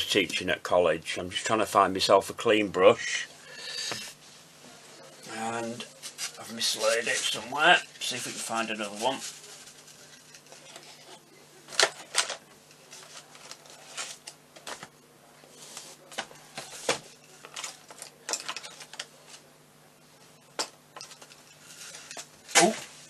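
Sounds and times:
tools rattling on a table: 17.3s - 19.1s, 20.9s - 22.3s.

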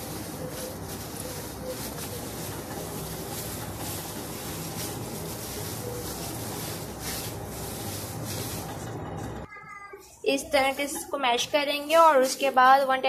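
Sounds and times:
hand mashing food in bowl: 0.0s - 9.4s.

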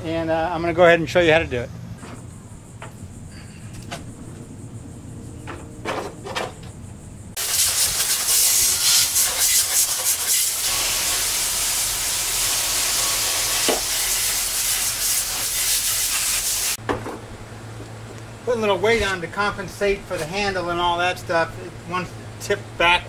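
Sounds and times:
hose spraying water on metal: 7.4s - 16.8s.

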